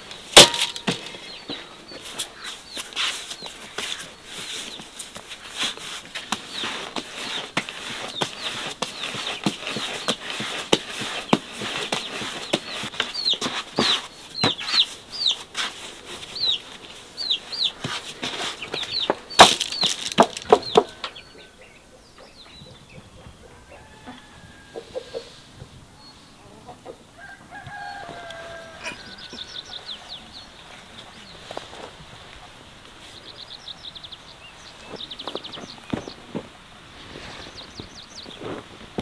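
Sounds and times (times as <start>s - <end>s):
hands patting bread dough: 2.8s - 14.8s
bird chirps: 11.9s - 15.4s, 16.3s - 17.9s, 18.5s - 23.3s, 27.8s - 31.4s.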